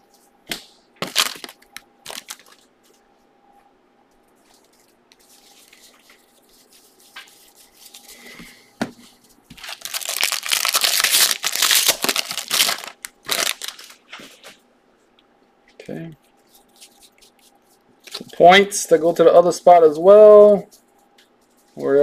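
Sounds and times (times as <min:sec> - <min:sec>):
wrapper crinkling: 0:01.0 - 0:02.7, 0:09.5 - 0:14.4.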